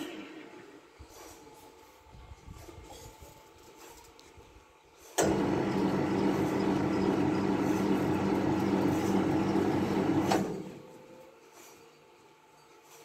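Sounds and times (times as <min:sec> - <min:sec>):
sawmill machinery motor humming: 0:05.2 - 0:11.0.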